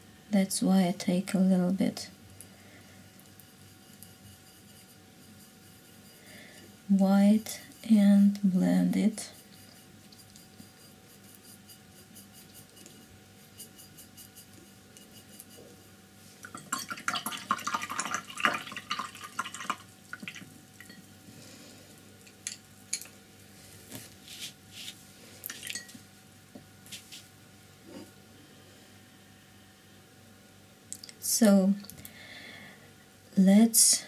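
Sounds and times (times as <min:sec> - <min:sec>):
brush rattling in glass jar: 0:09.2 - 0:15.7, 0:16.4 - 0:21.0.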